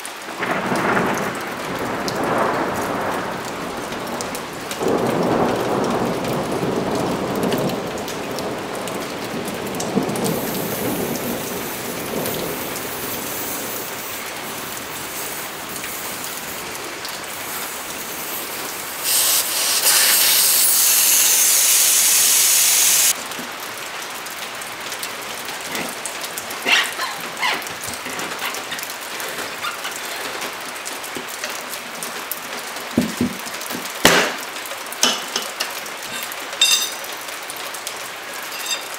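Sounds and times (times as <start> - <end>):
steady rain hiss: 0.0 - 38.9
low rumble of thunder: 0.4 - 19.0
metal clinks of tire irons: 36.1 - 37.1.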